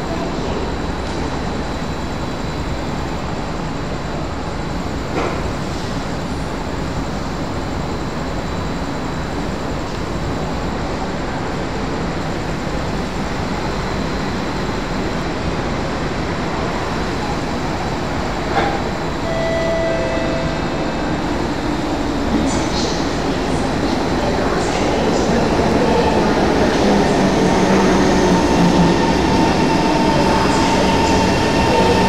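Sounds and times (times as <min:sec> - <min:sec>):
train rumbling along track: 0:00.0 - 0:32.0
brief steady tone: 0:19.2 - 0:21.6.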